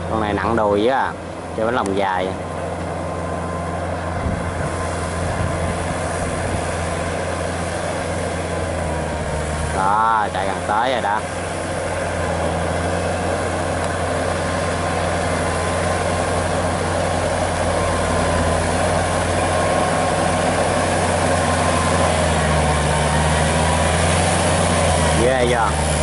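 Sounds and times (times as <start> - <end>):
tractor diesel engine under load: 0.0 - 26.0.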